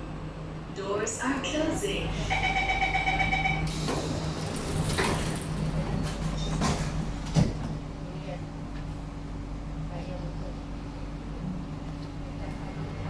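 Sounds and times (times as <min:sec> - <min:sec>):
steady warning tone: 0:00.8 - 0:04.5
sliding doors hissing shut: 0:03.7 - 0:05.6.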